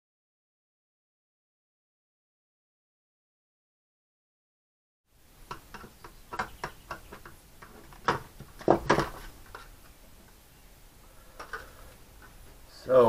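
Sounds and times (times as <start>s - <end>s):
knocks of parts on bench: 5.5s - 9.2s.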